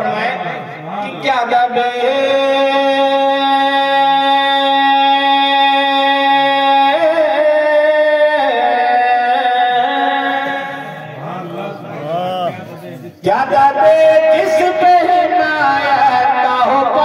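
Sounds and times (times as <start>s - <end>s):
man chanting long sung notes: 1.6s - 12.5s.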